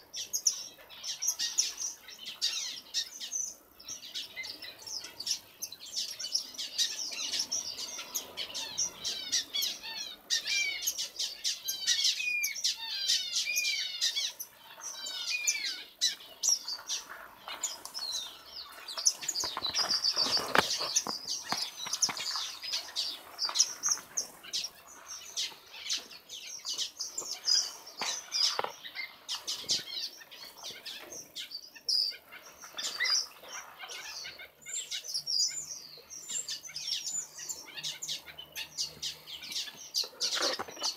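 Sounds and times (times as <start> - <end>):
small birds chirping: 0.0 - 40.9
flurry of wingbeats: 18.7 - 24.4.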